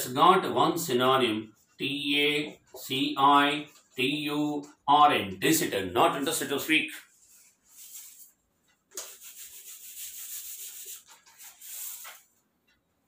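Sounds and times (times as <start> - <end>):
eraser rubbing on whiteboard: 7.1 - 12.3.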